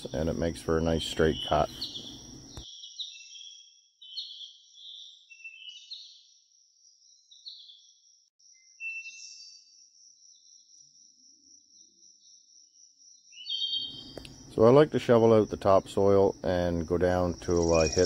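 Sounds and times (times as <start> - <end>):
birds chirping: 0.0 - 6.2, 13.4 - 18.0
high-pitched insect drone: 16.1 - 18.0.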